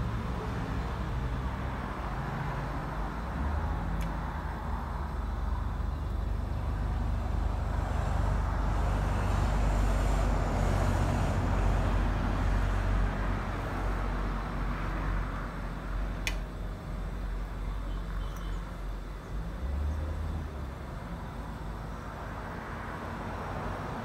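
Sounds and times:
sharp click: 0:16.2 - 0:16.5.

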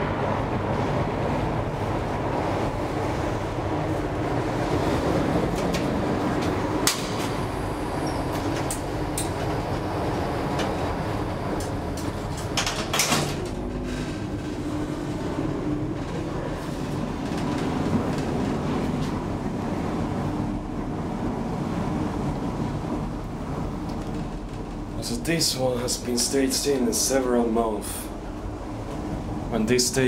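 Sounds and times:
elevator machinery hum: 0:00.0 - 0:30.0
sliding doors clattering shut: 0:04.9 - 0:19.2.

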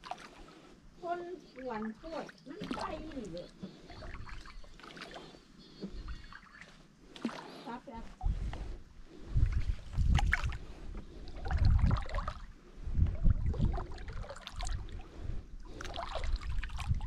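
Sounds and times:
canoe paddle splashing water: 0:00.0 - 0:00.6, 0:01.6 - 0:07.8, 0:09.4 - 0:12.5, 0:13.2 - 0:15.0, 0:15.6 - 0:17.0.

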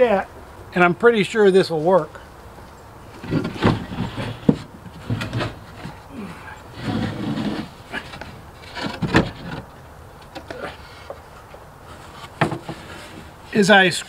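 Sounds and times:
wood scraping: 0:03.0 - 0:14.0
wood knocking on wood: 0:12.3 - 0:13.0.

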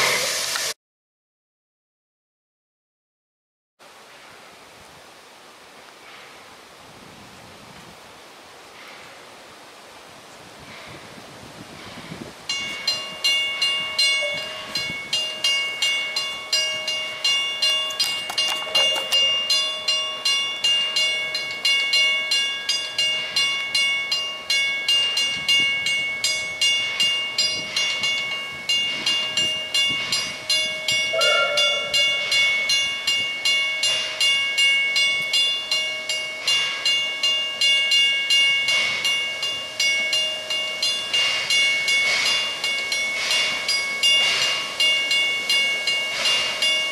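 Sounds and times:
level crossing bell ringing: 0:12.5 - 0:46.9.

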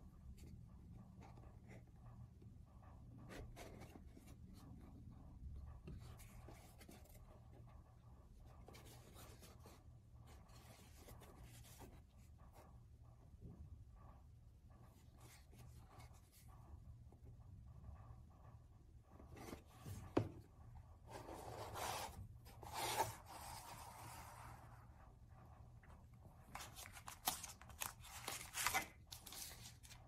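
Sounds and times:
fingers handling a cardboard box: 0:21.1 - 0:24.7.

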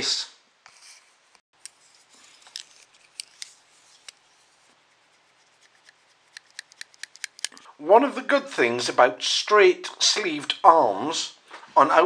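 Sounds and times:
multi-tool clicks and scrapes: 0:05.6 - 0:07.7.

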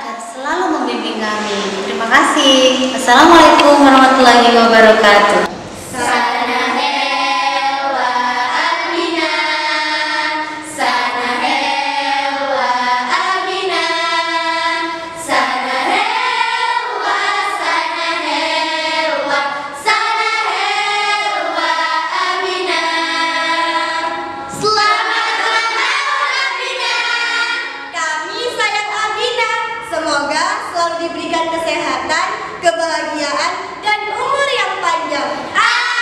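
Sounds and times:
girls singing together: 0:05.7 - 0:28.0, 0:35.3 - 0:36.0.

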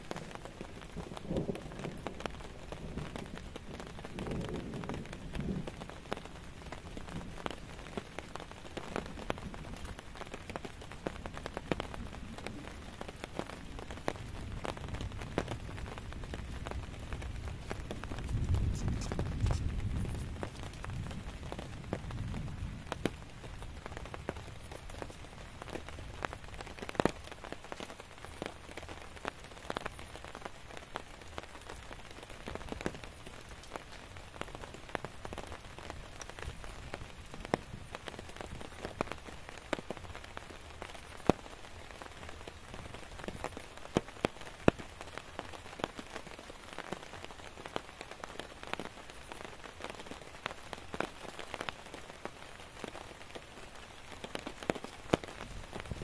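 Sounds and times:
rain hissing on a tent: 0:00.0 - 0:56.0
raindrops tapping on tent: 0:00.0 - 0:56.0.

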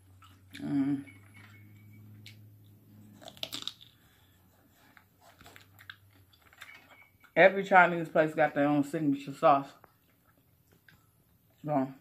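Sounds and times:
person chewing fried food: 0:00.0 - 0:00.7, 0:02.2 - 0:07.3, 0:09.9 - 0:11.6.

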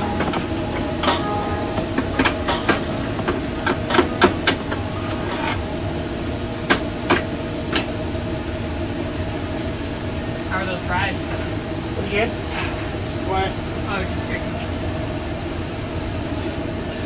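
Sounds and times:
metal utensils knocking on griddle: 0:00.0 - 0:05.6
kitchen hum: 0:00.0 - 0:17.0.

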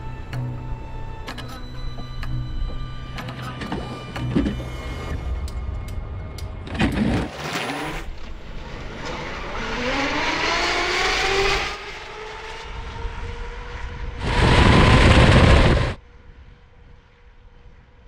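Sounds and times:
track rushing noise: 0:03.4 - 0:18.0
loud rushing noise: 0:06.6 - 0:16.0
electric motor whine rising: 0:07.0 - 0:16.0.

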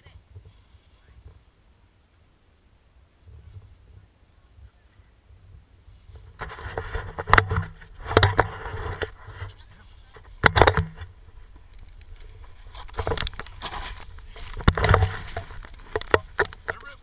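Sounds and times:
skis scraping through snow: 0:12.4 - 0:15.9.

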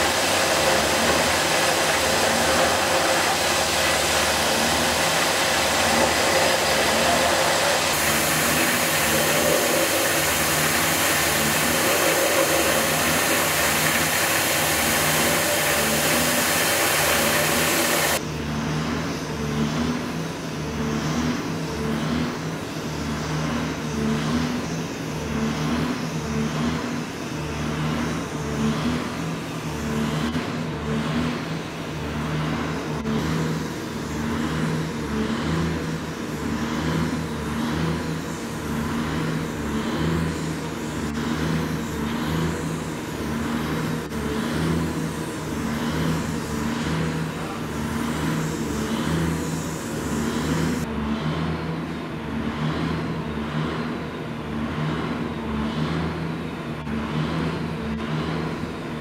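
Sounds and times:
belt grinder grinding metal: 0:00.0 - 0:18.2
machine hum: 0:00.0 - 0:59.0.

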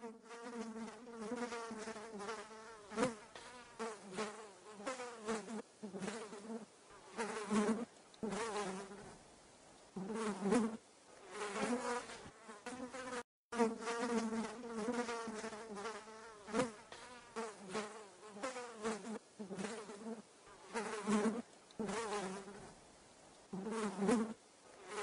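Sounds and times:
fly buzzing: 0:00.0 - 0:09.2, 0:10.0 - 0:22.8, 0:23.5 - 0:25.0.

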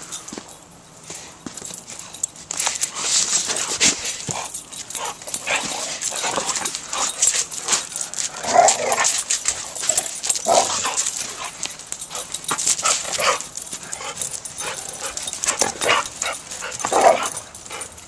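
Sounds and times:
scuffles and clicks: 0:00.0 - 0:17.9
dogs barking: 0:13.1 - 0:18.0.

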